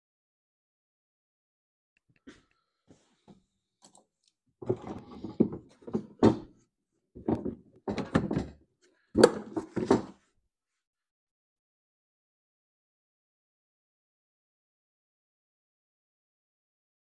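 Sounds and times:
plastic panel knocking and rattling: 4.6 - 6.5, 7.2 - 8.6, 9.2 - 10.2.

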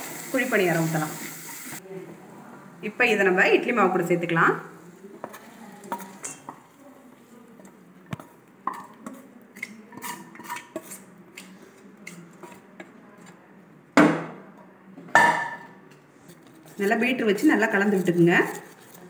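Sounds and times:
spatula scraping frying pan: 9.9 - 11.1, 16.3 - 19.0.

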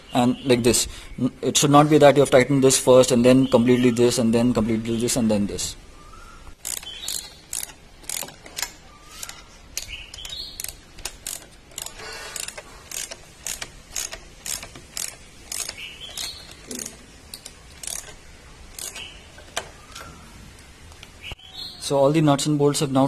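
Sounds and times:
ratchet wrench clicking: 6.6 - 19.6.

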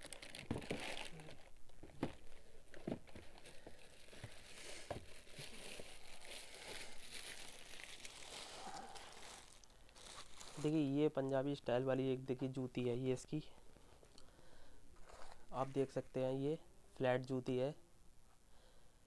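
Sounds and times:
shoe crinkling and rustling: 0.0 - 11.0, 15.0 - 16.2.

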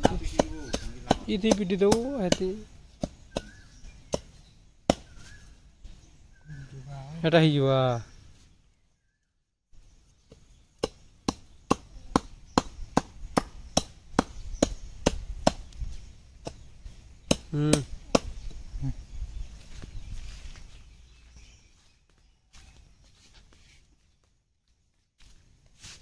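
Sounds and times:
chopping strokes: 0.0 - 3.5.

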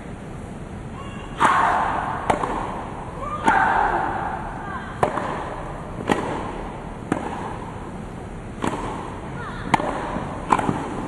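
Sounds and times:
rackets striking tennis ball: 1.4 - 11.0
tennis ball bouncing: 1.4 - 11.0.

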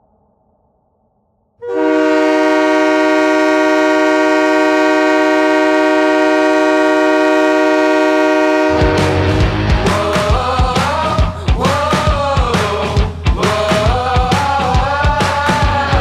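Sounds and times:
goal horn blast: 1.6 - 9.8
rock song: 8.4 - 16.0.

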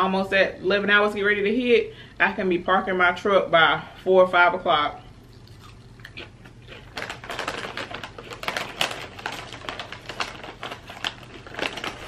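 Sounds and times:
plastic chip bag crinkling: 5.3 - 12.0.

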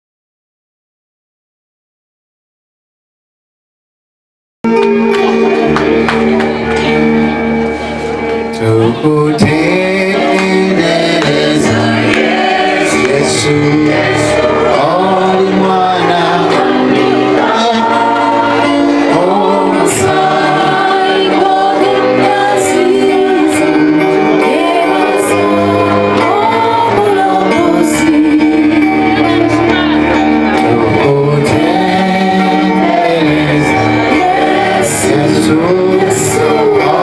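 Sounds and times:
instrumental backing: 4.6 - 37.0
choir singing gospel: 6.5 - 37.0.

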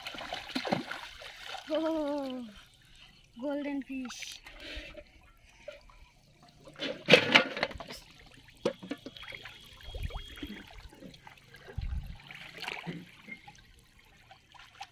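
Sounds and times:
person wading through shallow water: 0.0 - 3.4, 9.1 - 14.9.

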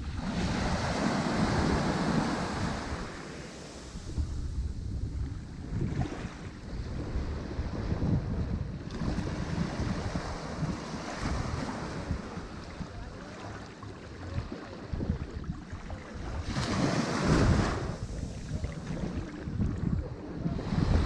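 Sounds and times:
sea waves washing onto shore: 0.0 - 21.0.

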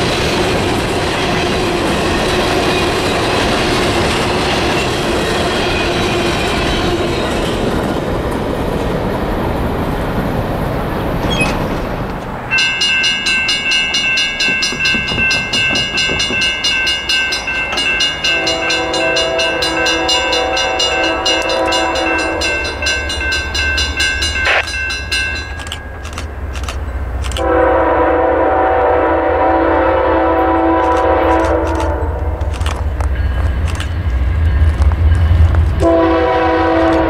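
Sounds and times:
low rumble of locomotive: 0.0 - 37.0
railroad crossing bell ringing: 12.4 - 28.2, 30.3 - 36.8
locomotive air horn blast: 18.2 - 22.8, 27.4 - 32.5, 35.8 - 37.0.

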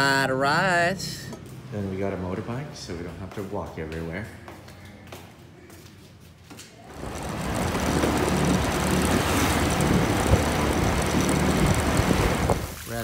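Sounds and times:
motor scooter engine hum: 6.9 - 12.7
rush of air and road noise: 7.0 - 13.0.

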